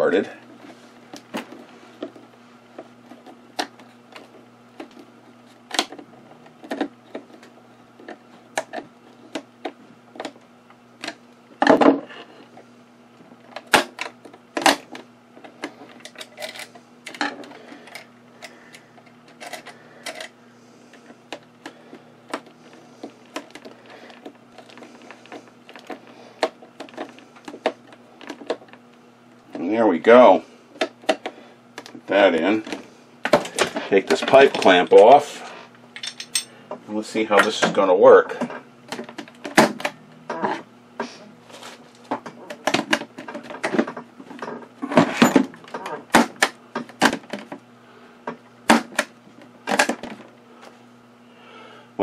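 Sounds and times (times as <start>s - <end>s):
steady low hum: 0.0s - 52.0s
tools being handled: 36.0s - 36.5s.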